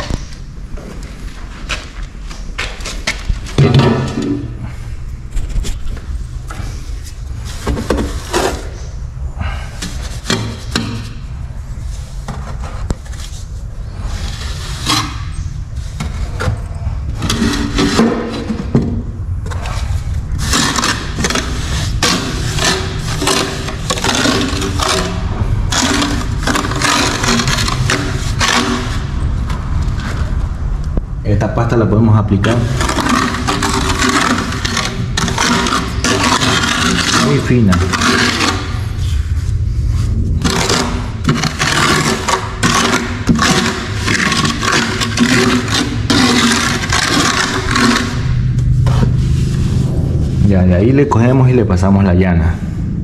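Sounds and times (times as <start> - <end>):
low rumble: 0.0 - 53.0
trowel scraping mortar on tile: 19.6 - 29.0, 32.5 - 39.0, 40.4 - 48.3.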